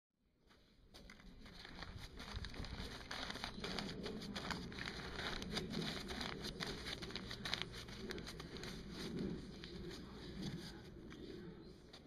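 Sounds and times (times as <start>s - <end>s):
paper bag being crumpled: 1.0s - 11.3s.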